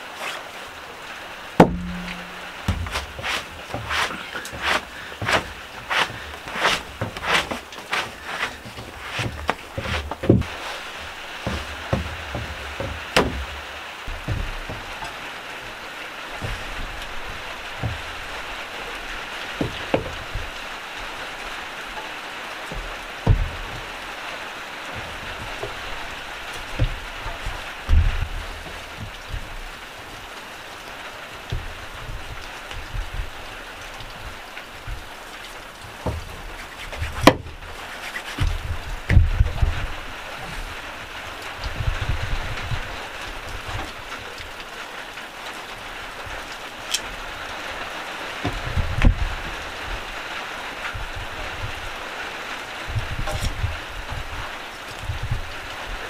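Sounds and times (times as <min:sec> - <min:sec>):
steady hiss: 0:00.0 - 0:56.0
knocks on wooden table: 0:01.6 - 0:06.1.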